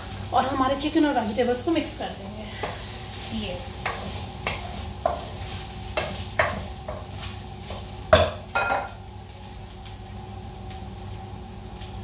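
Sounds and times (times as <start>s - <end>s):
food sizzling: 0.0s - 12.0s
spatula scraping frying pan: 2.4s - 8.9s.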